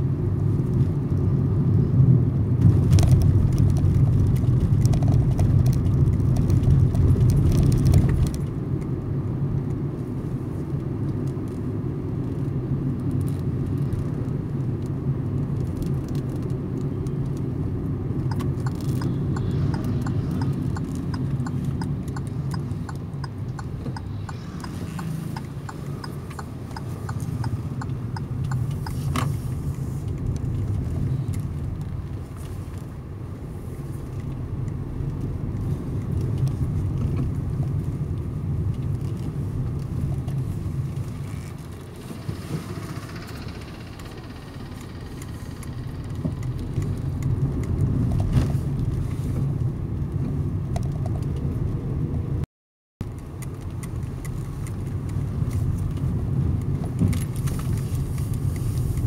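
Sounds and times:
car engine and road rumble: 0.0 - 59.0
light ticking: 18.3 - 29.0, 42.8 - 47.8.

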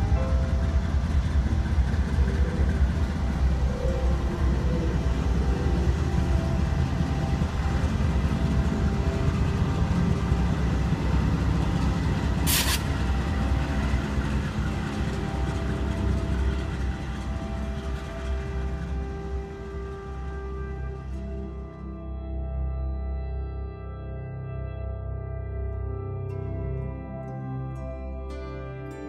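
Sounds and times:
diesel locomotive engine drone: 0.0 - 29.0
short hiss: 12.5 - 12.9.

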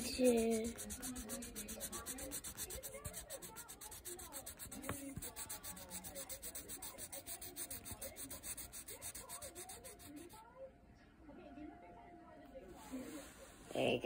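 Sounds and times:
scribbling on paper: 0.0 - 10.4.

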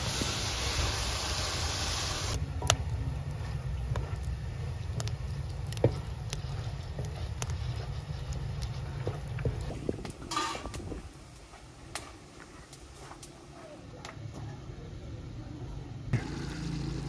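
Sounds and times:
low steady rumble: 2.3 - 11.1
wood fire crackling and popping: 2.3 - 13.4.

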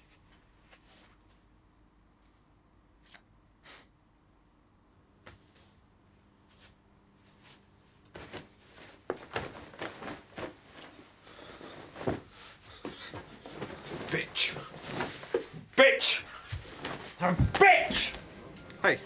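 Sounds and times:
clothing rustling: 6.5 - 18.8
thuds and shuffles: 7.3 - 15.7, 16.3 - 18.3.

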